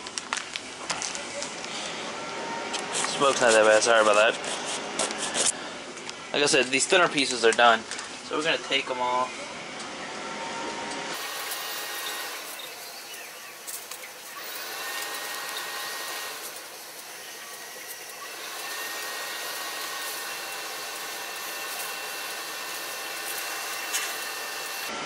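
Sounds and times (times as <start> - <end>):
grill fan whooshing: 10.2 - 25.0.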